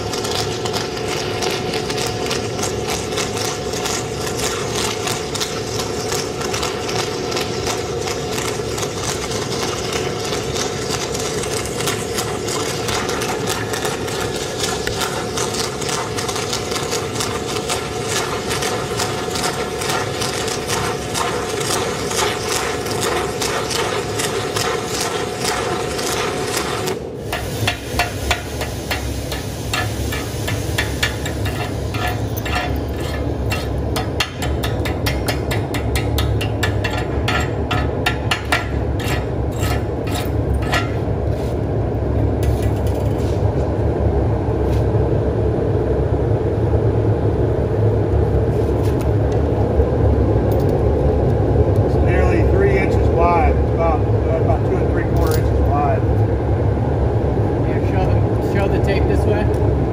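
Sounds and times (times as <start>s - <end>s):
welding arc crackling: 0.0s - 41.4s
steady machine drone: 0.0s - 59.9s
metallic taps chipping slag: 27.4s - 41.0s.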